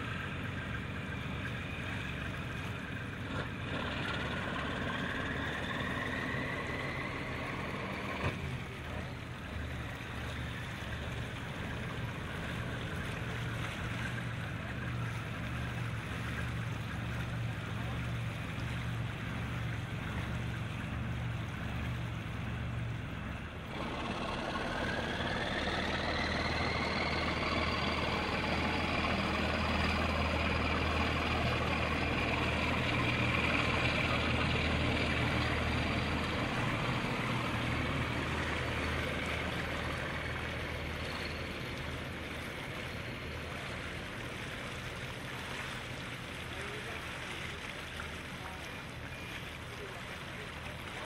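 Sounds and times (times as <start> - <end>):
boat engines whining: 0.0 - 51.0
low engine hum: 0.0 - 51.0
rushing water: 0.0 - 51.0.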